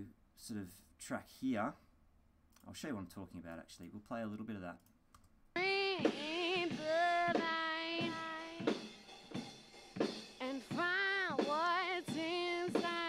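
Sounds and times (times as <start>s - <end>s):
drum kit: 5.6s - 13.0s.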